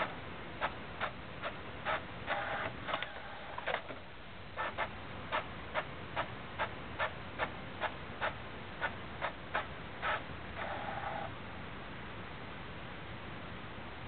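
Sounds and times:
printer clicking: 0:01.4 - 0:04.0.

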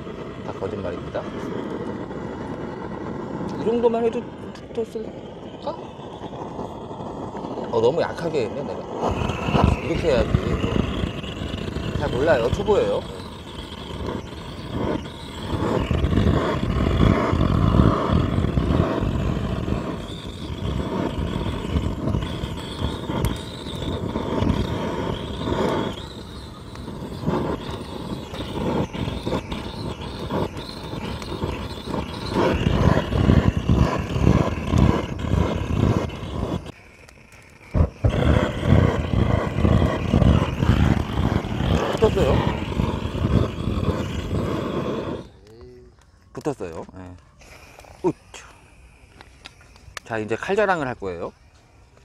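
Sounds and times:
torch flame roaring: 0:00.0 - 0:52.0.

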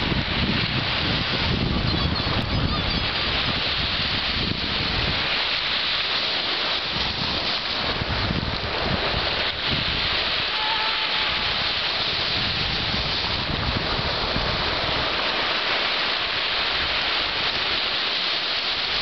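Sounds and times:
hiss of surf and foam: 0:00.0 - 0:01.9, 0:03.1 - 0:19.0
waves breaking over rocks: 0:00.0 - 0:19.0.

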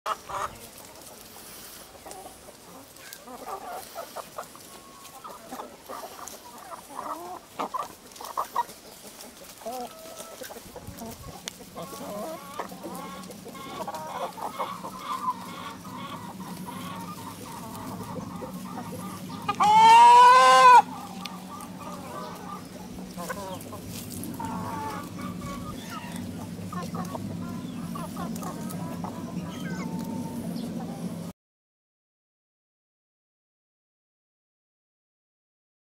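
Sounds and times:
chickens clucking: 0:00.1 - 0:31.3
rooster crowing: 0:19.5 - 0:22.4.

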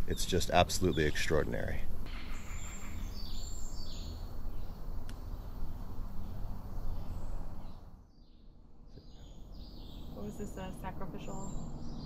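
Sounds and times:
insects calling: 0:00.0 - 0:07.9
birds calling: 0:00.0 - 0:12.0.

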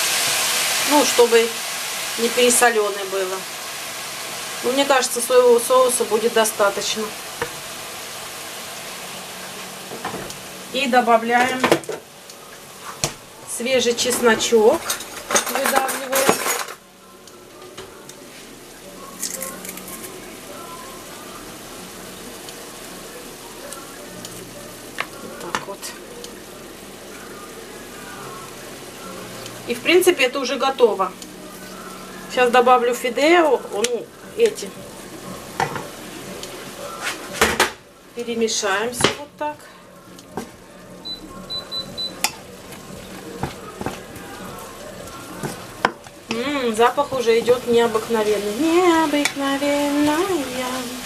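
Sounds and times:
vegetables sizzling in a frying pan: 0:00.0 - 0:51.0
kitchen utensils knocking: 0:14.0 - 0:16.8
spatula stirring in a pan: 0:38.8 - 0:50.7.

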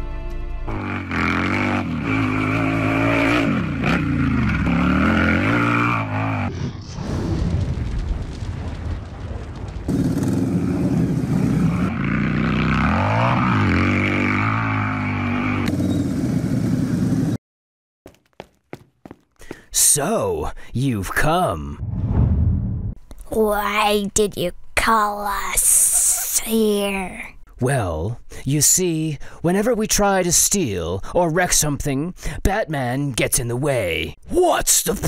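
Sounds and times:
motorcycle engine revving: 0:00.7 - 0:06.5, 0:09.9 - 0:17.4.

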